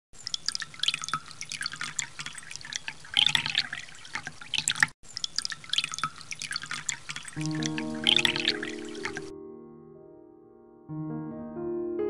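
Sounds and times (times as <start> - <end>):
water drops into pool: 0.2 - 9.3.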